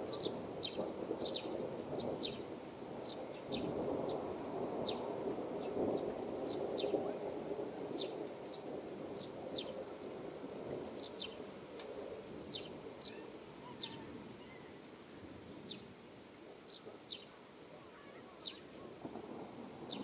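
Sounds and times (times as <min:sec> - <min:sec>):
sparrows chirping: 0:00.0 - 0:07.1, 0:07.9 - 0:09.8, 0:10.9 - 0:11.5, 0:12.4 - 0:14.8, 0:15.4 - 0:16.0, 0:16.6 - 0:17.4, 0:18.1 - 0:18.8.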